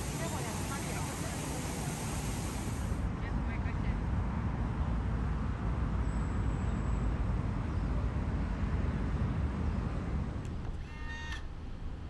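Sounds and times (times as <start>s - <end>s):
distant road traffic rumble: 0.0s - 4.0s, 8.2s - 12.0s.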